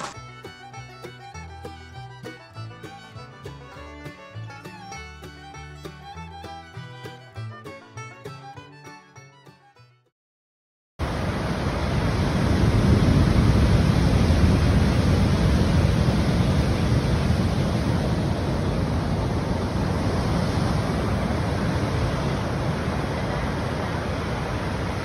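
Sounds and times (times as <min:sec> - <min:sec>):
ocean surf rushing onto beach: 0:11.0 - 0:25.0
wind on microphone: 0:11.1 - 0:25.0.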